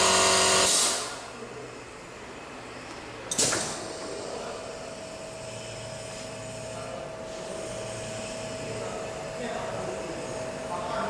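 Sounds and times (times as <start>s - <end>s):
sharp burst of noise: 0.0s - 1.2s.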